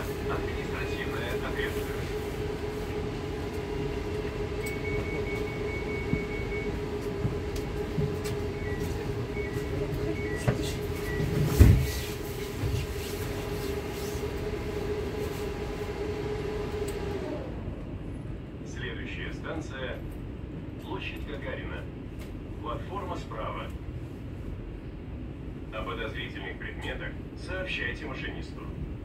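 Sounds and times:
train electrical hum: 0.0s - 29.0s.

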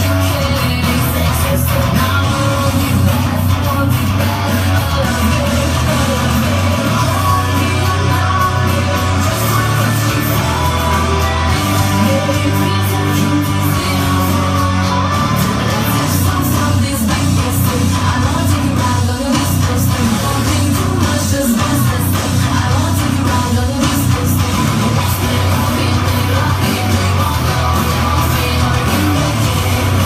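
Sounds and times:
loud song with singing voice: 0.0s - 30.0s.

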